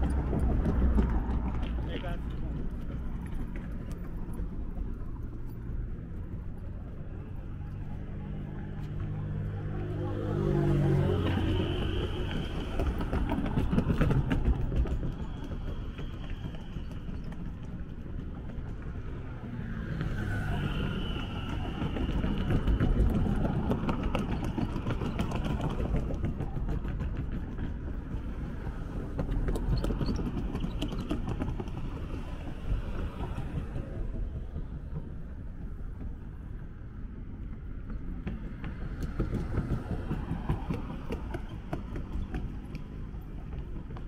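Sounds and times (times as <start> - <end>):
footsteps on pavement: 0.0 - 9.7
cars driving past: 0.0 - 44.0
low traffic rumble: 0.0 - 44.0.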